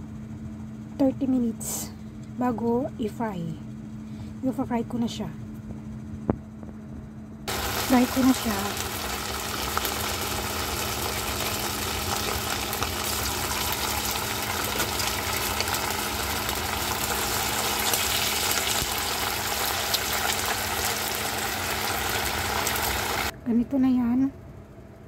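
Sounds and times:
steady low hum: 0.0s - 25.0s
meat sizzling in hot oil: 7.5s - 23.3s.

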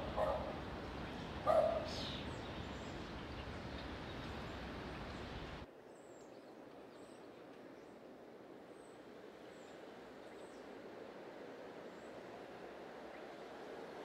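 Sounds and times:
dog barking: 0.0s - 0.6s, 1.4s - 2.0s
outdoor ambience: 0.0s - 14.0s.

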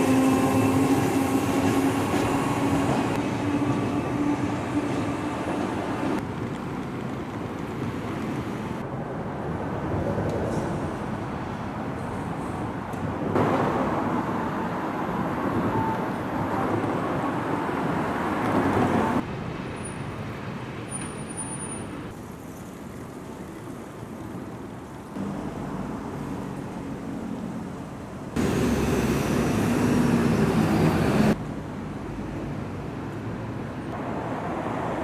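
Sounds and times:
city street traffic: 0.0s - 35.0s
bus engine low hum: 22.0s - 35.0s.

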